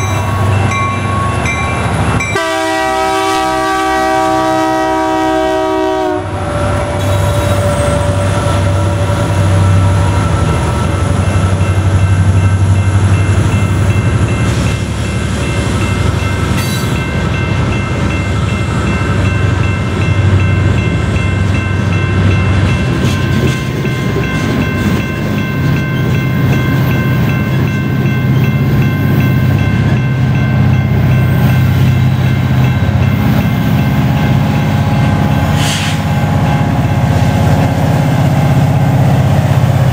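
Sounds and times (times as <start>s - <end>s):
diesel locomotives rumbling: 0.0s - 39.9s
train wheel noise: 0.0s - 39.9s
locomotive horn: 2.2s - 11.2s.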